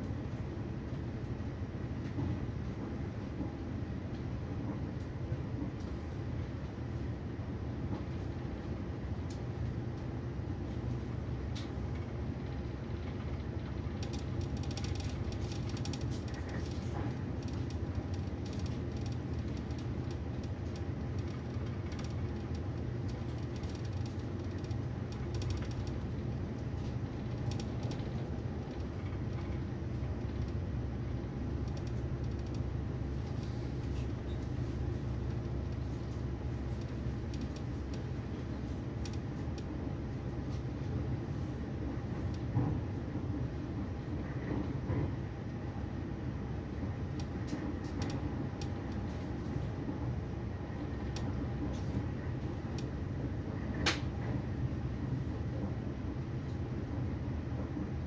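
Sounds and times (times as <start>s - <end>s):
train coach rumble: 0.0s - 58.0s
light clicks and rattles: 10.8s - 39.8s, 47.1s - 49.7s.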